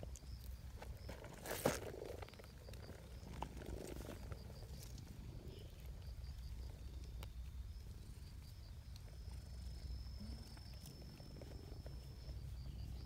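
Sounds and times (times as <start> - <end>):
cat purring: 7.8 - 13.0.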